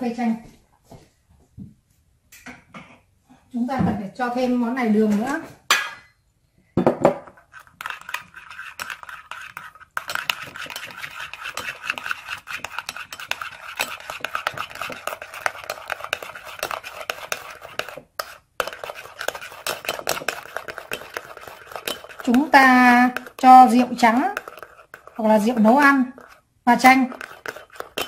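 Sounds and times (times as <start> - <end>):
spoon clinking and scraping bowl: 7.3 - 28.0.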